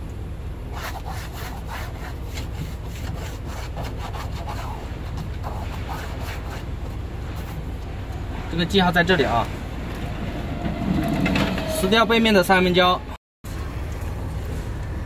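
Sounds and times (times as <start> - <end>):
wipe rubbing plastic panel: 0.7 - 7.7.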